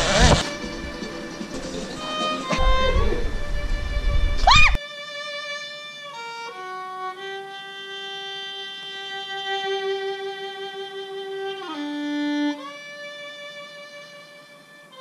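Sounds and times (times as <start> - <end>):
solo violin melody: 0.0 - 15.0.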